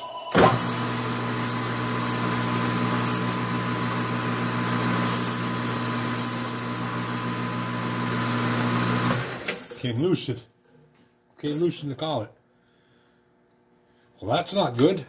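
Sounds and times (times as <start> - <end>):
metal lathe motor humming: 0.3 - 9.5.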